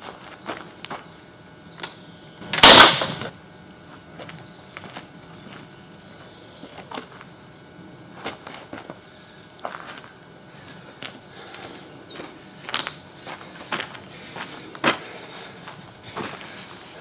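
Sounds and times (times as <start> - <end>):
faint footsteps on gravel: 0.0 - 1.2, 3.8 - 7.4, 8.1 - 17.0
slingshot ball hitting stone crack: 2.5 - 3.3.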